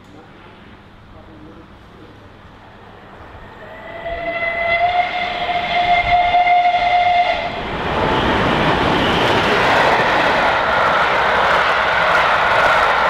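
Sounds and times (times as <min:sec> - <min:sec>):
train rushing past: 0:00.1 - 0:13.0
steam whistle: 0:03.6 - 0:07.6.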